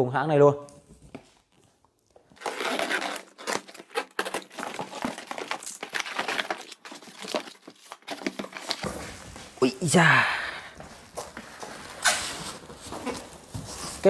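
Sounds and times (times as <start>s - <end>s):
plastic wrap crinkling: 1.0s - 10.0s, 10.7s - 14.0s
box cutter slitting tape: 2.4s - 8.2s.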